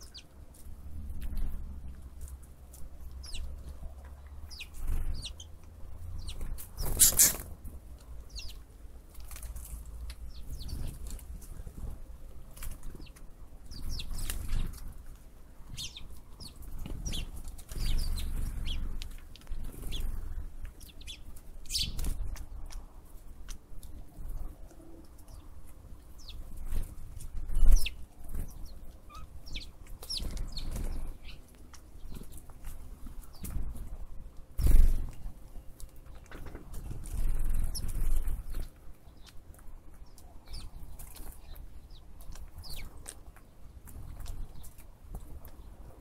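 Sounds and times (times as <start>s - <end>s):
wind rumble on microphone: 0.0s - 8.5s
small birds chirping: 0.0s - 46.0s.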